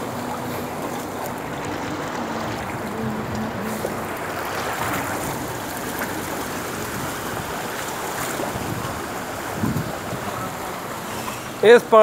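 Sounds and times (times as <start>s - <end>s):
heavy rain splashing: 0.0s - 12.0s.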